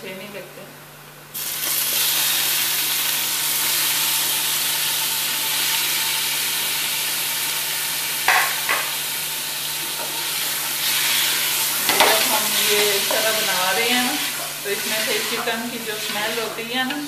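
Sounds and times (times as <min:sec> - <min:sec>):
chicken sizzling in hot oil: 0:01.3 - 0:17.0
wooden spoon stirring: 0:11.0 - 0:17.0.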